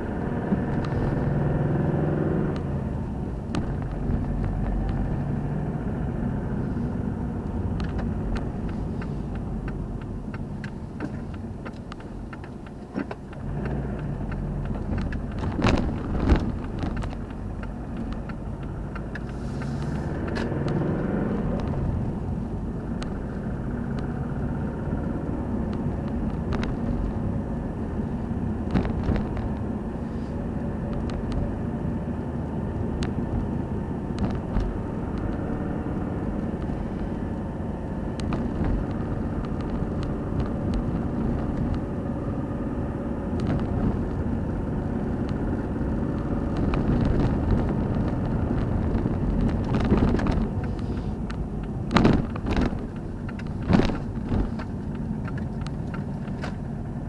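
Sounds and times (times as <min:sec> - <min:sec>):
car engine and tyre rumble: 0:00.0 - 0:57.0
clicks and knocks from car body: 0:07.6 - 0:20.8, 0:28.6 - 0:29.7, 0:46.5 - 0:56.7.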